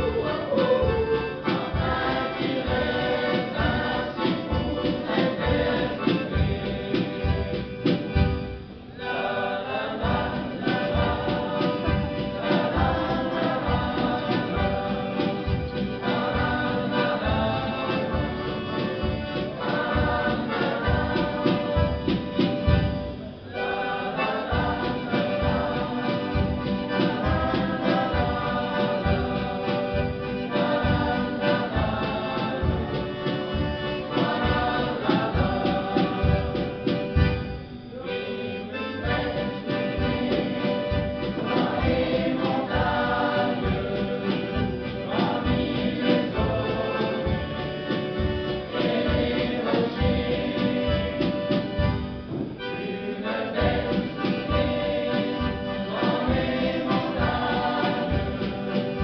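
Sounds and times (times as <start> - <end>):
children's choir yodelling: 0.0 - 7.4, 23.2 - 36.8
accordion: 0.0 - 59.0
steady beat: 0.0 - 59.0.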